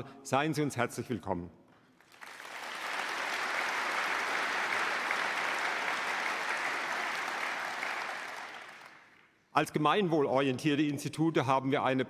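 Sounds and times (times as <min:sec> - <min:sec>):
large audience applauding: 0:02.0 - 0:09.4.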